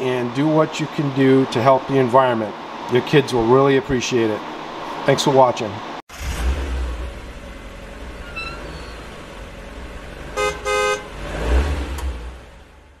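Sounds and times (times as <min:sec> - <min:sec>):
car engine rumble: 0:06.1 - 0:13.0
car horn beeping: 0:08.2 - 0:09.1, 0:10.3 - 0:11.2.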